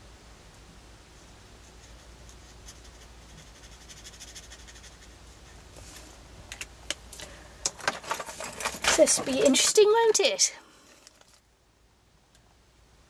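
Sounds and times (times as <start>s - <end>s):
marker scratching on paper: 1.6s - 5.6s.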